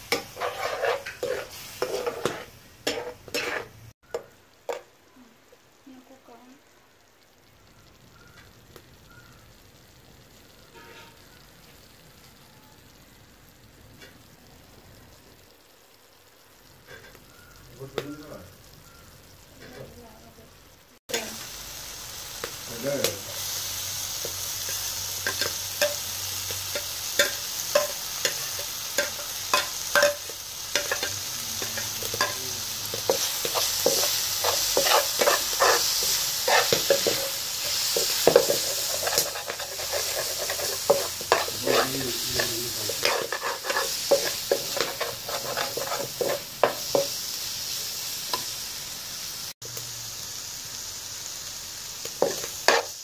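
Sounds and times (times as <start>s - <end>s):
spoon scraping a pan: 0.0s - 4.8s, 16.8s - 17.6s, 23.4s - 47.2s, 52.1s - 53.0s
food sizzling in a frying pan: 0.0s - 53.0s.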